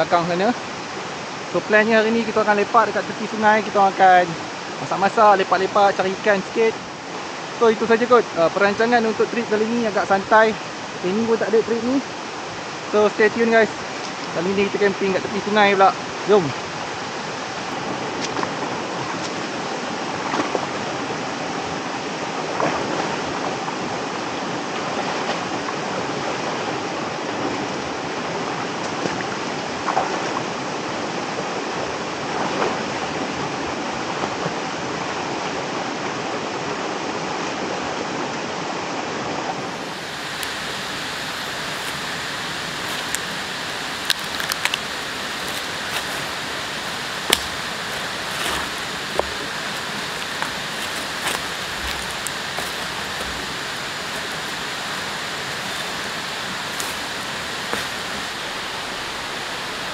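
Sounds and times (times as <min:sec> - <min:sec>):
river flowing: 0:00.0 - 0:59.9
thin hiss: 0:39.6 - 0:59.9
sharp clicks: 0:42.8 - 0:56.1.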